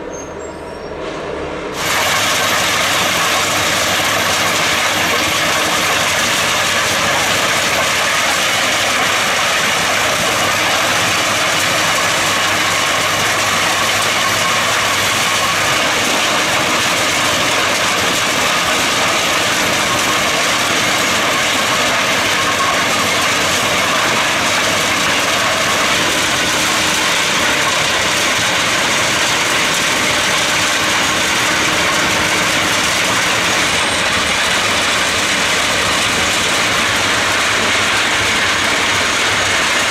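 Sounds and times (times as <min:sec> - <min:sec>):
diesel engine under load: 0:00.0 - 0:39.9.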